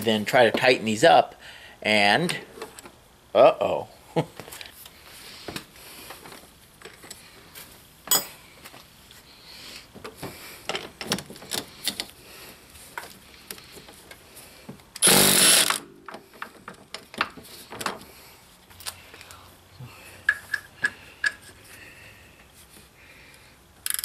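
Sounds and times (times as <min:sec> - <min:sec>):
power tool motor burst: 0:15.0 - 0:16.0.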